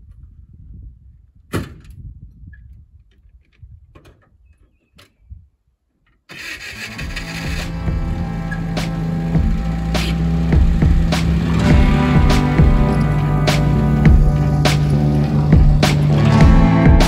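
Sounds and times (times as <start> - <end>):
music: 6.8 - 17.0
engine rumbling unevenly: 7.1 - 17.0.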